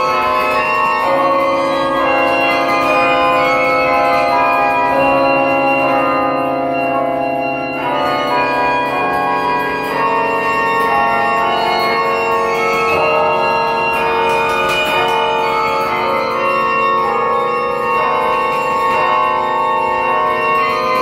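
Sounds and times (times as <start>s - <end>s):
carillon bells ringing: 0.0s - 21.0s.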